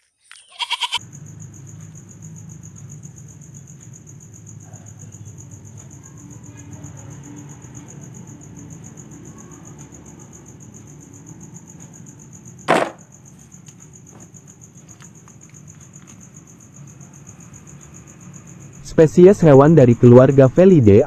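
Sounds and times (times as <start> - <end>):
crickets chirring: 0.0 - 21.0
plastic toy dropped into basket: 12.7 - 13.0.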